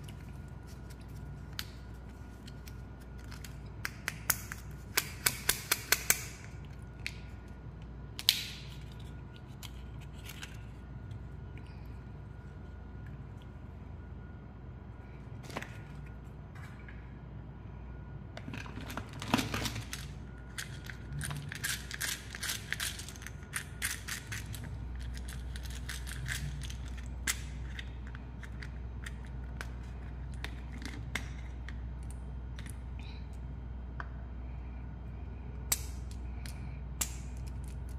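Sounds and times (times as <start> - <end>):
steady low hum: 0.0 - 37.9
plastic toys clicking and rattling: 19.2 - 29.2.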